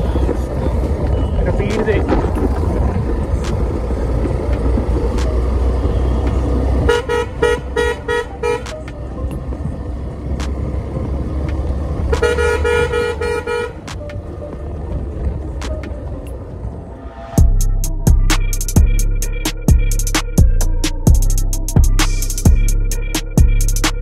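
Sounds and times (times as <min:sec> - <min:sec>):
low engine rumble: 0:00.0 - 0:24.0
motorcycle horn beeps: 0:06.8 - 0:08.7.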